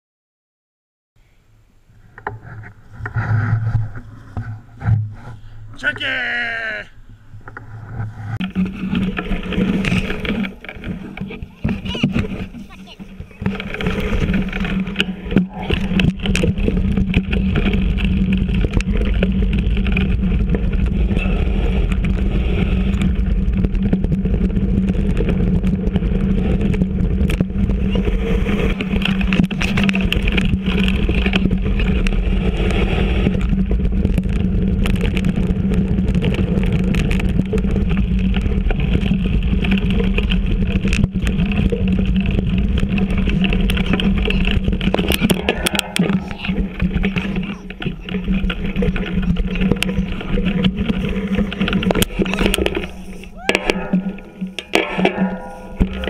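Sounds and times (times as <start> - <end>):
bike tyres rumbling on dirt: 1.8 - 56.0
wheels knocking on roots: 2.1 - 56.0
bike frame rattling: 7.4 - 56.0.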